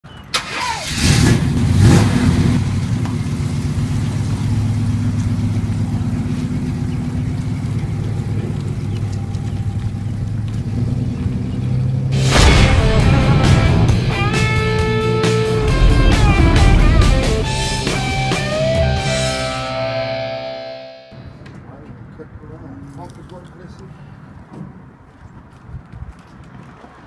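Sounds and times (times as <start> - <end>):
car engine starting and running: 0.3 - 21.2
music: 12.2 - 21.2.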